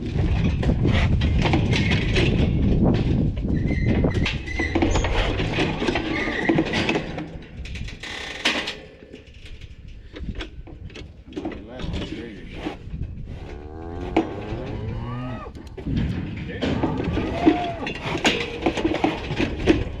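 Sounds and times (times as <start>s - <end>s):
cattle chute gates clanging: 0.1s - 20.0s
heavy low rumble: 11.7s - 18.0s.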